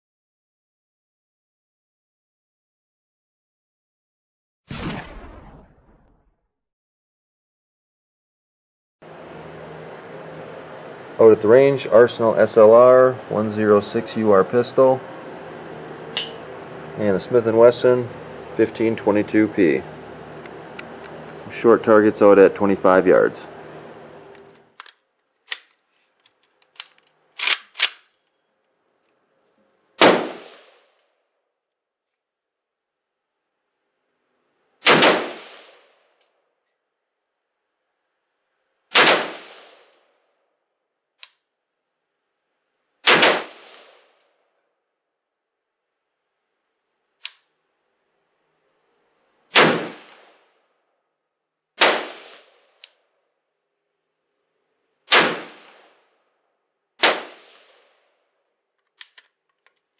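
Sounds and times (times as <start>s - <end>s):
loud pistol shot: 4.7s - 6.2s, 30.0s - 30.8s, 34.8s - 35.8s, 38.9s - 39.9s, 43.0s - 44.0s, 49.5s - 50.4s, 51.8s - 52.6s, 55.1s - 56.0s, 57.0s - 57.8s
gunshots with ringing tail: 4.7s - 6.3s, 30.0s - 30.8s, 34.8s - 35.8s, 38.9s - 39.9s, 43.0s - 44.0s, 49.5s - 50.5s, 51.8s - 52.8s, 55.1s - 56.0s, 57.0s - 57.8s
small clicks of handling: 24.8s - 28.4s, 58.8s - 59.9s.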